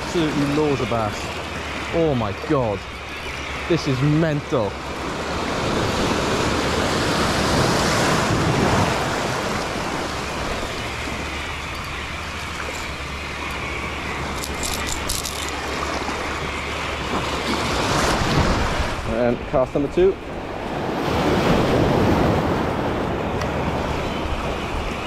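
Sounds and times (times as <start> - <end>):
surf washing over rocks: 0.0 - 2.9, 3.7 - 13.2.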